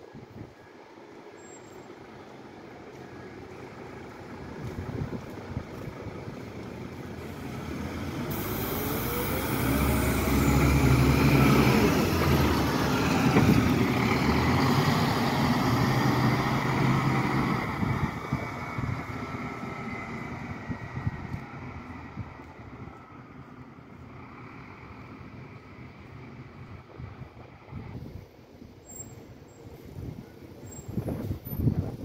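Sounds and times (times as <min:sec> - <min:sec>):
diesel bus driving past: 0:00.0 - 0:32.0
rising whine: 0:07.2 - 0:13.8.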